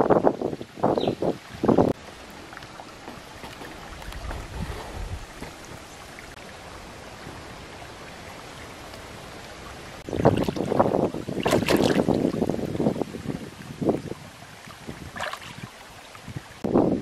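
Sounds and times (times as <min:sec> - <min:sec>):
stream rushing: 0:00.0 - 0:17.0
hands splashing in water: 0:11.4 - 0:12.4, 0:15.1 - 0:15.7.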